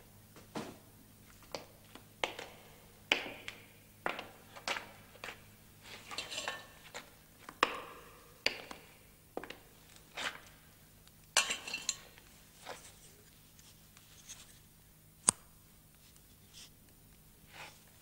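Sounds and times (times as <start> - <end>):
faint steady hum: 0.0 - 18.0
boots on stone floor: 1.4 - 10.6.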